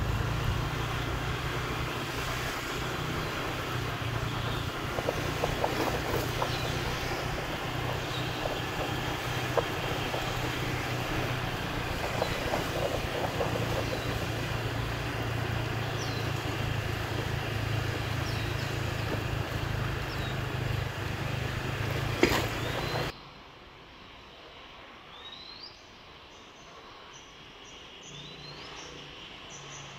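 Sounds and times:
distant traffic rumble: 0:00.0 - 0:23.1.

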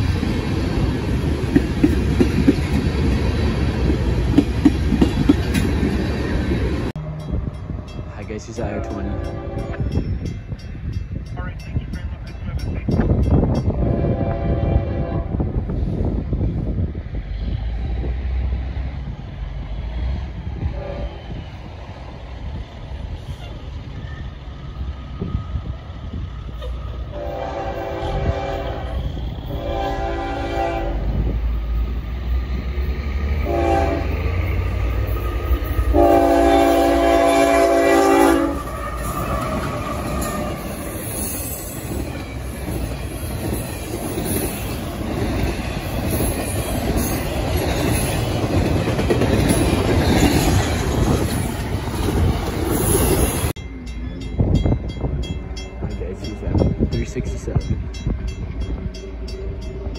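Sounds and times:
train cars clattering over rails: 0:00.0 - 0:06.9, 0:38.6 - 0:58.9
locomotive engine rumbling: 0:00.0 - 0:59.9
train air horn: 0:08.8 - 0:09.9, 0:13.7 - 0:15.5, 0:20.7 - 0:21.3, 0:27.1 - 0:31.2, 0:33.4 - 0:34.2, 0:35.9 - 0:40.7.

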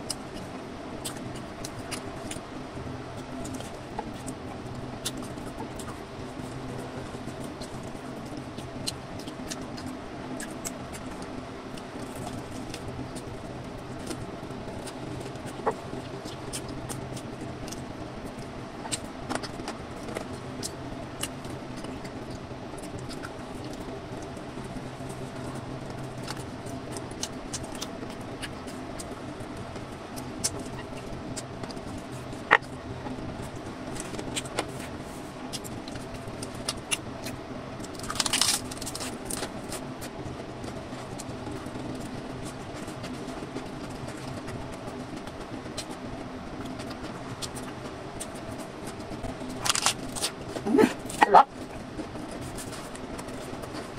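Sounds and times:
steady background hum: 0:00.0 - 0:53.9
person chewing food: 0:30.2 - 0:39.8.

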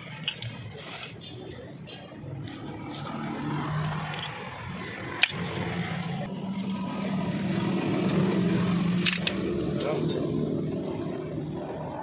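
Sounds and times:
sharp metallic click: 0:09.0 - 0:09.4.

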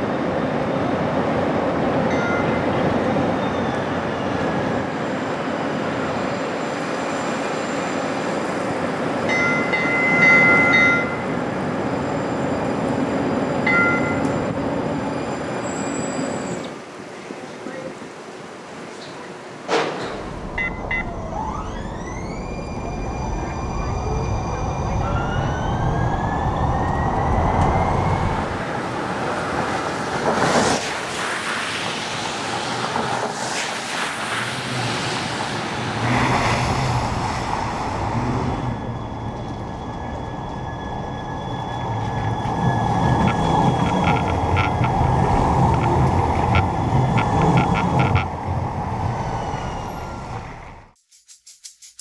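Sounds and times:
road traffic: 0:00.0 - 0:51.0
streetcar motor whine: 0:20.1 - 0:29.9, 0:35.6 - 0:51.0.

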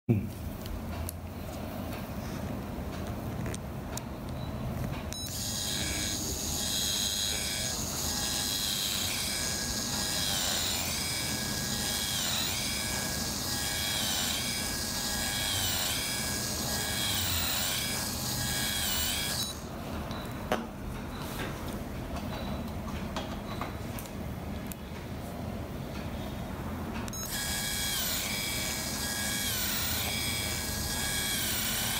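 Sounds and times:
dental handpiece whining: 0:05.2 - 0:19.7, 0:27.1 - 0:31.9.

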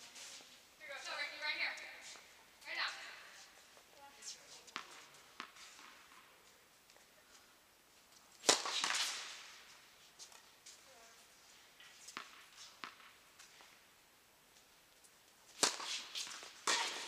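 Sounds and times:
tennis ball impacts: 0:04.7 - 0:06.3, 0:08.4 - 0:10.4, 0:11.8 - 0:13.8, 0:15.5 - 0:17.0.

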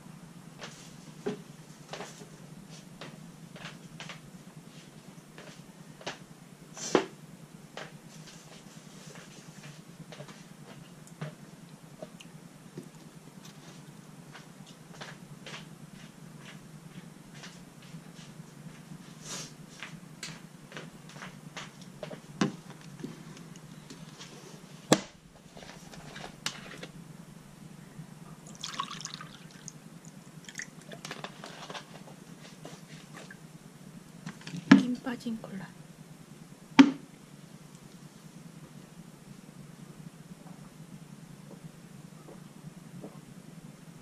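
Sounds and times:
low steady hum: 0:00.0 - 0:44.0
cola pouring and fizzing: 0:28.4 - 0:29.8, 0:30.4 - 0:31.2.

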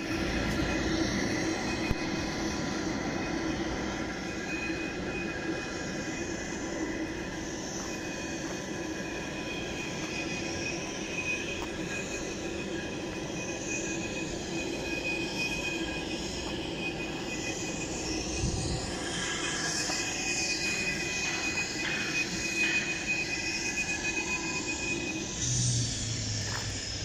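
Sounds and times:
aircraft machinery whine and hum: 0:00.0 - 0:27.0.

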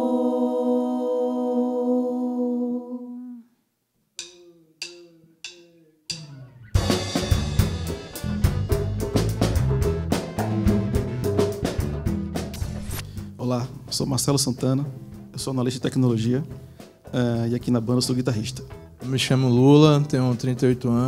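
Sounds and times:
women singing a chord: 0:00.0 - 0:03.5
drum strikes: 0:04.2 - 0:20.4
upbeat band playing: 0:06.7 - 0:21.0.

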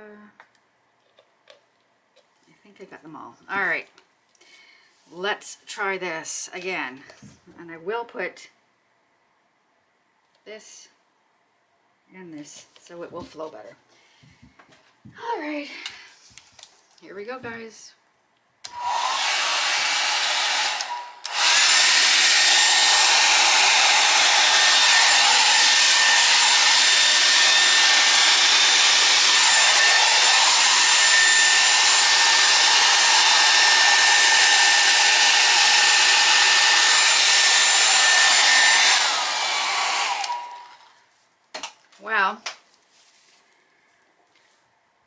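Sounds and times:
electric air blower running: 0:18.7 - 0:40.9.

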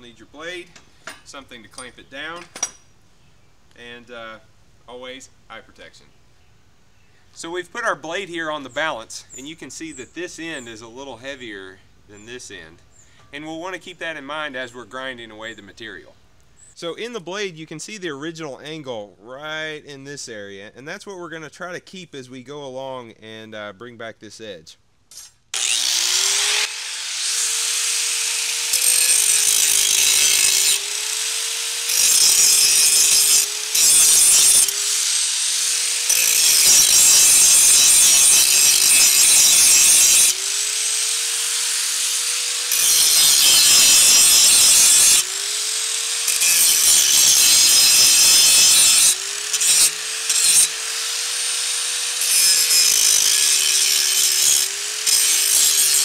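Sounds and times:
angle grinder motor whine: 0:25.6 - 0:56.0
grinding on steel blade: 0:25.6 - 0:56.0.

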